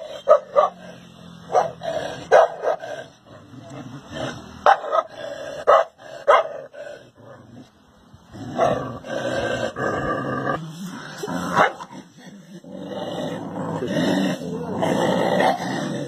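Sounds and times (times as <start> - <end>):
dog barking: 0.2 - 0.8, 1.5 - 2.8, 4.6 - 5.1, 5.7 - 6.6.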